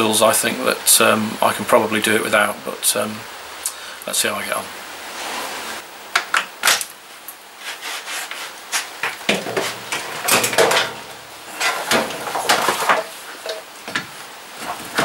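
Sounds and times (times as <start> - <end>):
hand tools clattering: 9.0 - 14.0.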